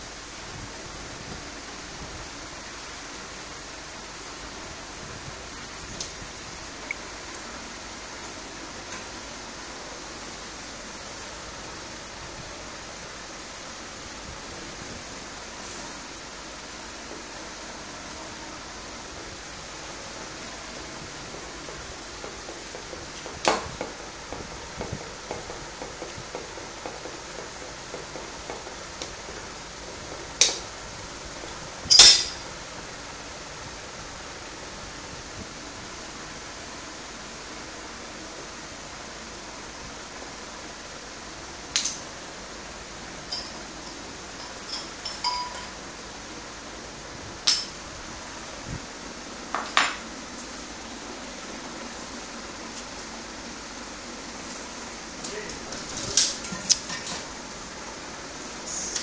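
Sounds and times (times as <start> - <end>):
steady background noise: 0.0 - 59.0
metallic clank with ring: 31.9 - 32.5, 43.3 - 45.8
metallic clinks of steel parts: 31.9 - 32.5.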